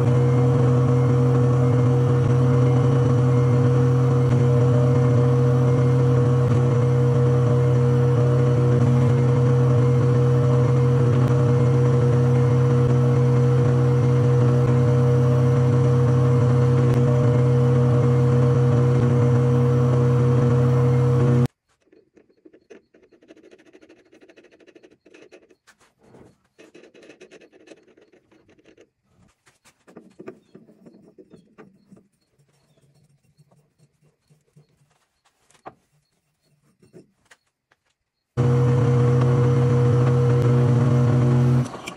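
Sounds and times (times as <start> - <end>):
metal lathe humming: 0.0 - 21.5, 38.4 - 41.9
faint clicks and scrapes of handling: 21.5 - 38.1.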